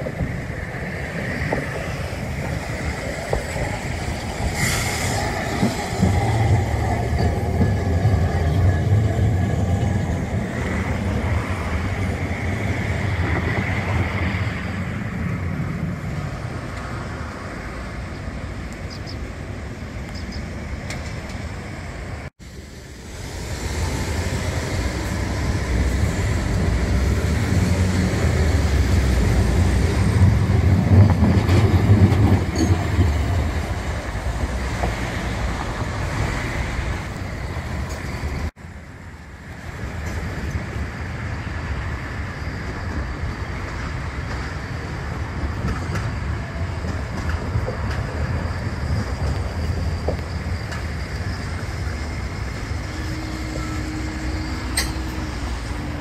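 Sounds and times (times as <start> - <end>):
road traffic: 0.0 - 56.0
streetcar wheels and motors rumbling: 0.0 - 56.0.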